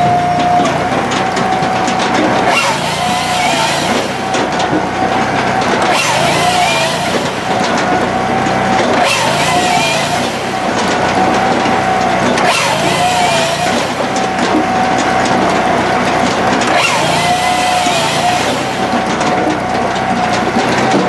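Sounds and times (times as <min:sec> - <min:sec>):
firewood processor engine whining: 0:00.0 - 0:21.0
saw cutting logs: 0:00.0 - 0:21.0.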